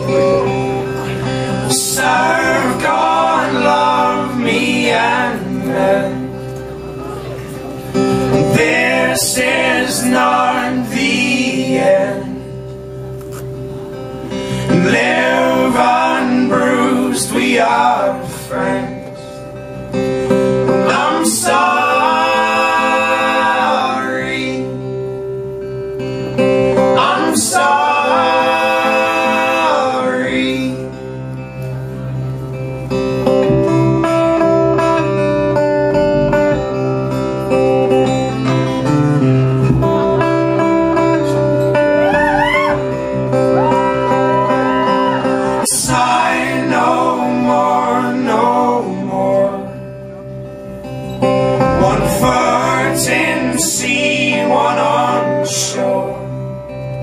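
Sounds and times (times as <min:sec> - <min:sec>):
voices singing in harmony: 0:00.0 - 0:06.4, 0:08.2 - 0:12.6, 0:14.6 - 0:19.4, 0:20.5 - 0:25.2, 0:26.5 - 0:31.1, 0:41.3 - 0:50.1, 0:51.6 - 0:56.7
acoustic guitar: 0:00.0 - 0:57.0.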